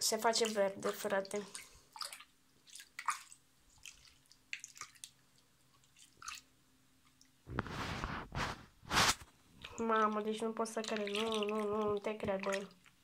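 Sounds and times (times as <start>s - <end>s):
water sloshing: 0.1s - 6.5s, 9.6s - 13.0s.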